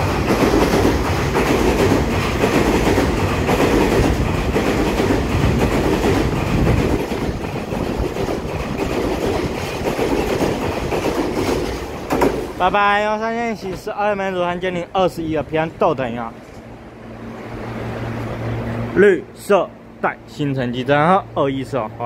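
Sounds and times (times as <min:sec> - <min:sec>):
train wheels on rail: 0:00.0 - 0:19.0.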